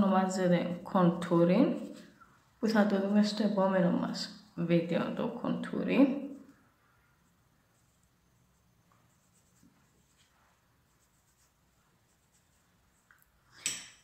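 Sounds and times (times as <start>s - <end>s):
makeup brush brushing skin: 0.6s - 2.2s, 7.2s - 13.3s.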